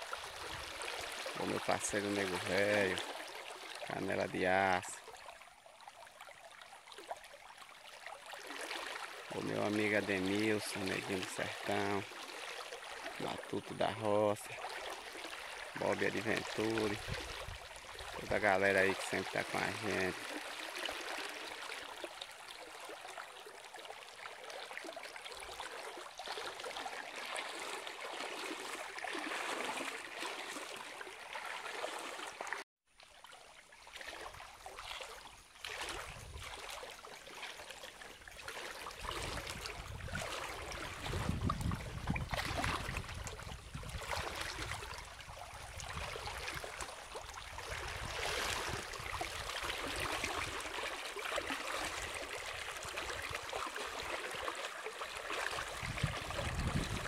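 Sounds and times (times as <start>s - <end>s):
river water rushing: 8.3s - 32.6s, 46.0s - 56.6s
wind rumble on microphone: 17.0s - 18.4s, 36.0s - 36.5s, 39.2s - 46.3s, 55.7s - 57.0s.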